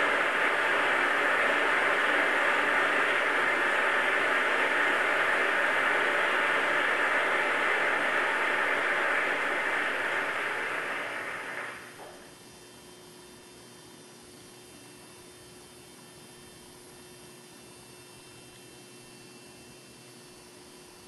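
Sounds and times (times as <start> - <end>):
audience applause through tv speaker: 0.0 - 11.8
low hum: 0.0 - 11.9.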